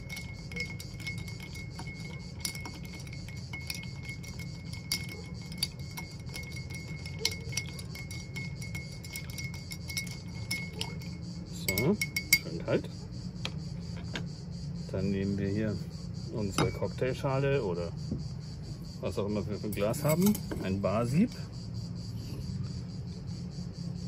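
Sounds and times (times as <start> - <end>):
ice clinking against glass: 0.0 - 12.8, 16.4 - 17.1, 19.6 - 21.2
spoon stirring ice in glass: 0.0 - 12.8, 19.6 - 20.8.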